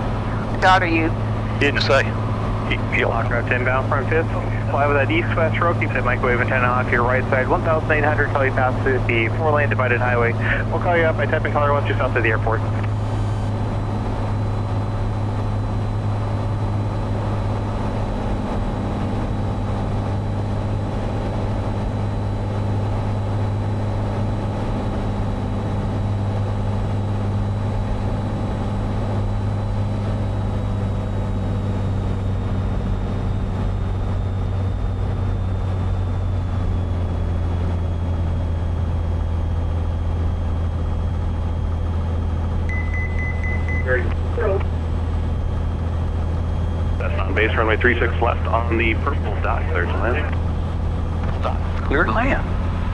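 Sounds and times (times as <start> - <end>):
propeller plane engine in flight: 0.0 - 52.9.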